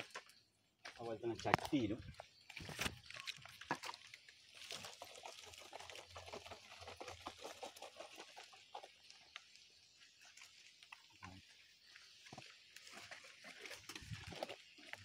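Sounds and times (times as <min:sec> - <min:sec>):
liquid splashing onto soil: 0:02.8 - 0:11.2.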